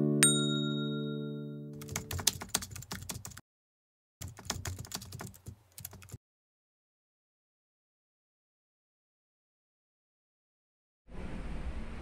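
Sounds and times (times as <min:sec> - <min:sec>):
computer keyboard typing: 0:01.8 - 0:03.4, 0:04.2 - 0:06.2.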